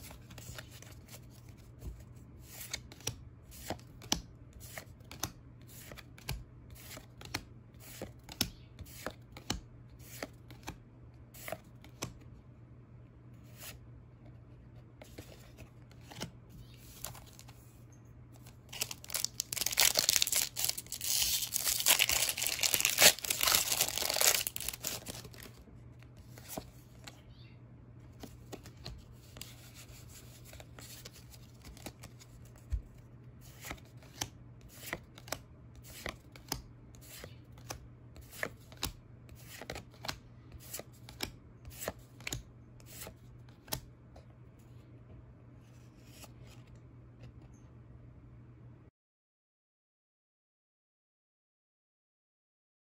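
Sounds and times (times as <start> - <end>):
foil pack torn and crinkled: 18.7 - 25.5.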